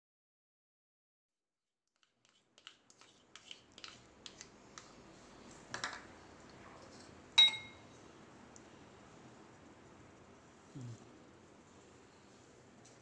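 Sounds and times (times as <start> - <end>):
spoon scraping bowl: 2.0 - 5.0
spoon tapping plastic bowl: 7.4 - 7.8
dishes clinking: 7.4 - 7.9.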